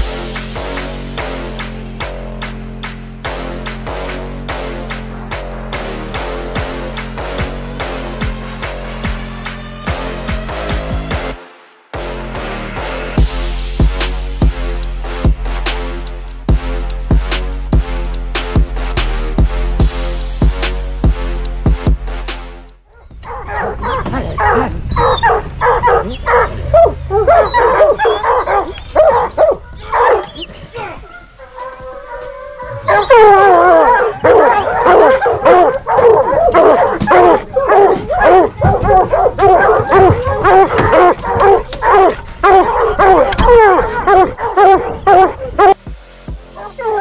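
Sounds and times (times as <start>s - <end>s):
drum-heavy music: 0.0s - 24.6s, 25.2s - 47.0s
hounds barking and bawling: 22.9s - 45.8s, 46.5s - 47.0s.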